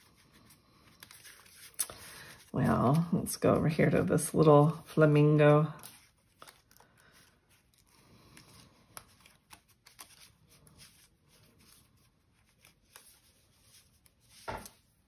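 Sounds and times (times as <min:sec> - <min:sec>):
paper ticking and rustling: 0:05.7 - 0:15.0.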